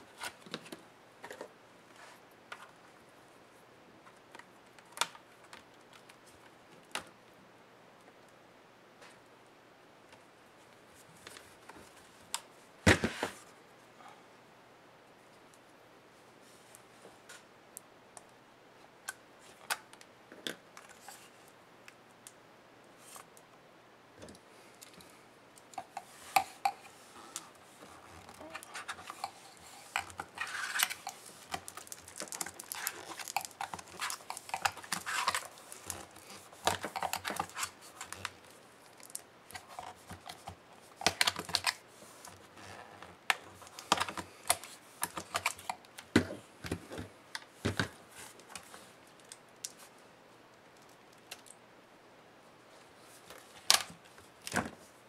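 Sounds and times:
plastic scraping: 25.8s - 38.4s.

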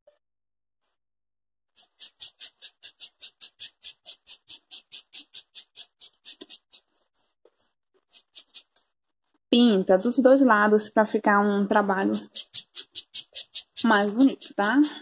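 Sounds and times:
scratchy paint strokes on foam: 1.8s - 9.4s, 10.9s - 15.0s.

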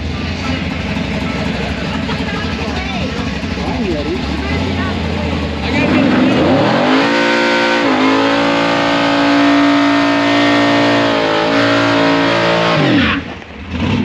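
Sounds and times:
pickup engine revving: 0.0s - 14.0s
tires spinning: 0.0s - 14.0s.

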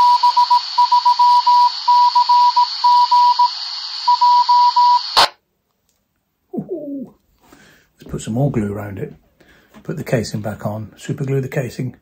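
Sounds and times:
morse code beeps: 0.0s - 5.3s
burst of radio noise: 0.0s - 5.4s
radio static hiss: 0.0s - 5.4s.

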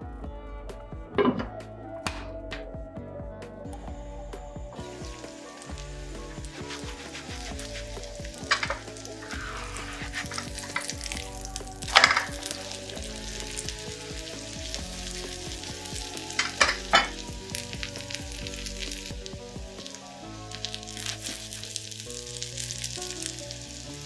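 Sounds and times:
hot oil spitting: 4.8s - 24.0s
pancake sizzling in oil: 4.8s - 24.0s.

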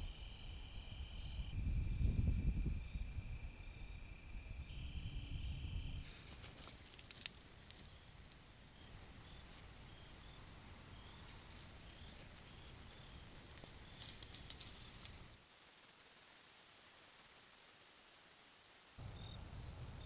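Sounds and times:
crickets chirping: 0.0s - 15.4s, 19.0s - 20.0s
dry brush rustling: 6.0s - 9.9s, 11.0s - 15.3s.

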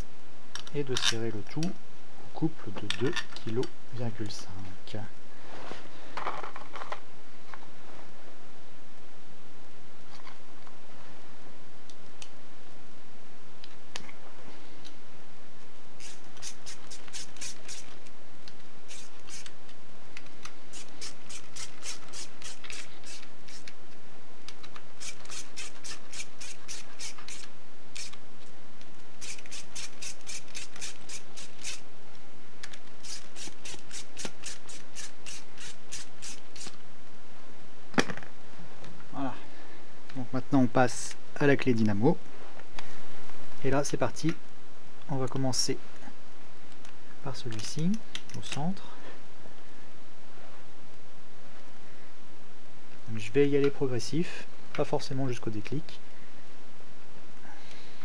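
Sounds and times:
hand ratchet clicking: 16.0s - 17.9s, 18.9s - 19.5s, 20.7s - 23.7s, 25.0s - 28.2s, 29.2s - 31.8s, 32.6s - 36.8s.

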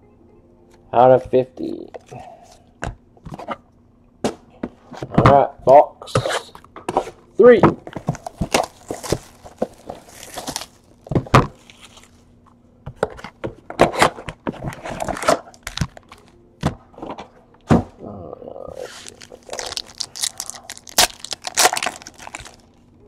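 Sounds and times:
plastic shrink-wrap crinkling: 8.1s - 12.2s, 18.8s - 22.8s.

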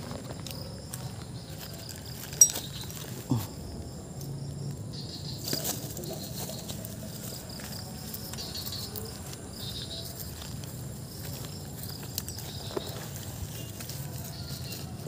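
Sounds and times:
footsteps through wet grass: 5.5s - 15.0s.

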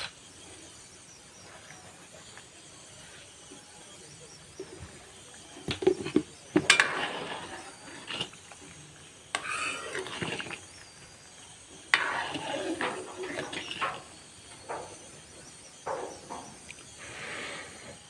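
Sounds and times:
spoon scraping and stirring stew: 5.7s - 8.6s, 9.3s - 10.8s, 11.9s - 15.2s.

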